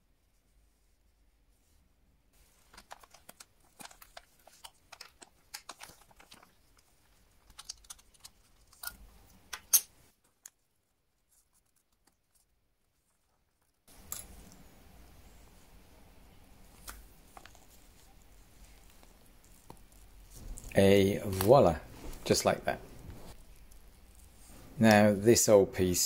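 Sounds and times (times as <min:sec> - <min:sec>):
plastic bag crinkling: 0:02.4 - 0:08.8.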